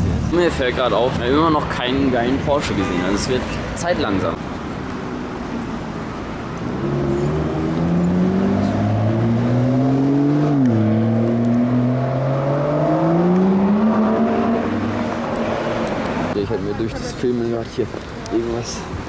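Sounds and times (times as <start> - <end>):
car engine accelerating: 6.5 - 16.4.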